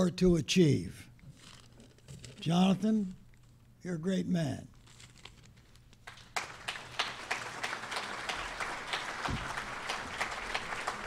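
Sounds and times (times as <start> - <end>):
audience applauding: 6.0 - 11.0.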